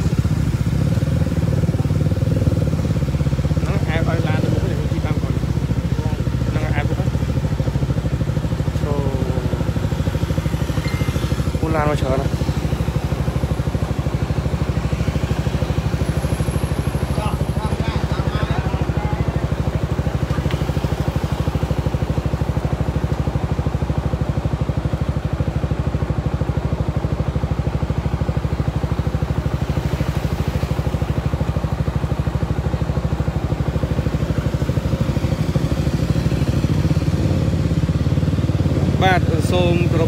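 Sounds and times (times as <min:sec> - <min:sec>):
vehicle engine running: 0:00.0 - 0:40.0.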